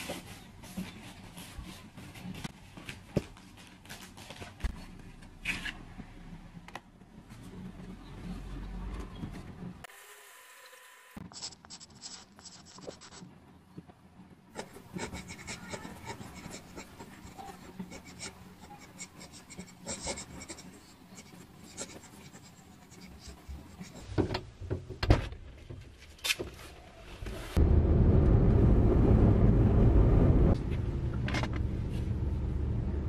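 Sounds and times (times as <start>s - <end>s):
pen scratching on card: 11.3s - 13.2s, 14.6s - 24.1s.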